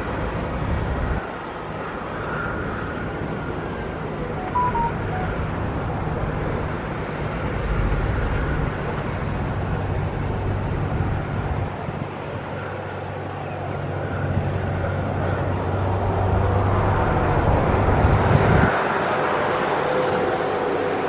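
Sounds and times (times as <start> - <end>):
jet engine rumble: 0.0 - 21.0
short high tones: 4.2 - 5.6.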